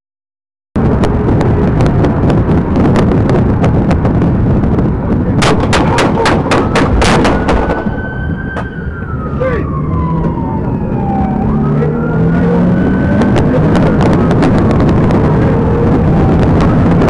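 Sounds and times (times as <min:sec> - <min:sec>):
car engine and road noise: 0:00.8 - 0:17.0
rapid gunshots: 0:05.4 - 0:07.9
police siren: 0:06.0 - 0:17.0.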